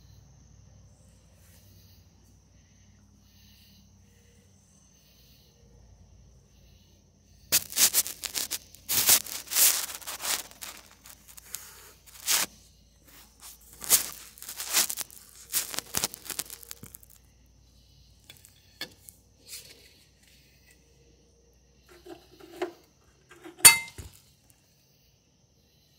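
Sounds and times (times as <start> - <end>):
phone handling rubbing and scraping: 21.9 - 24.2.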